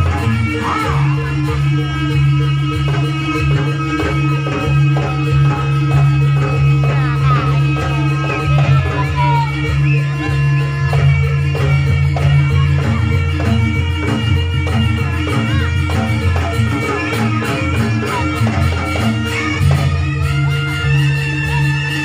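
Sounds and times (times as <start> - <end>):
loud electronic music: 0.0 - 22.0.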